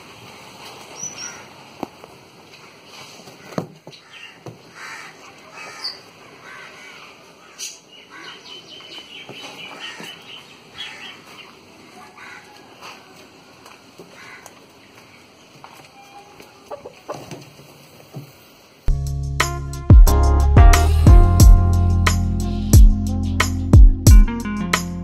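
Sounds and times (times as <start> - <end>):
chickens clucking: 16.1 - 18.0.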